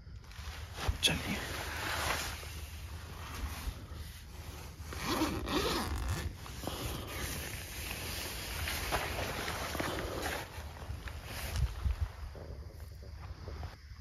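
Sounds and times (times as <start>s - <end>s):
tent zipper being pulled: 1.4s - 11.6s.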